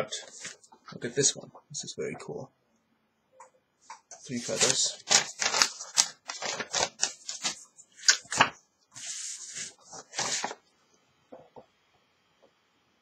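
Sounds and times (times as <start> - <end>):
paper rustling and crinkling: 4.2 - 10.6.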